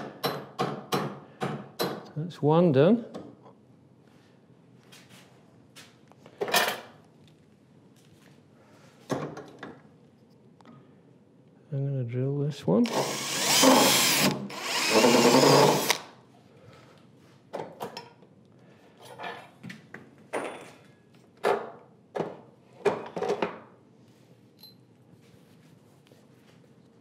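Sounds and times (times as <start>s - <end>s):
cordless drill boring into wood: 12.8s - 16.1s.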